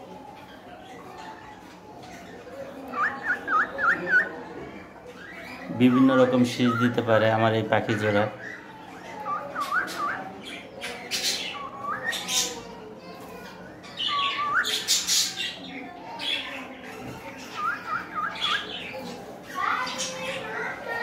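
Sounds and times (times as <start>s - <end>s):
cockatiels whistling: 2.9s - 4.3s, 8.4s - 12.6s, 17.5s - 19.0s.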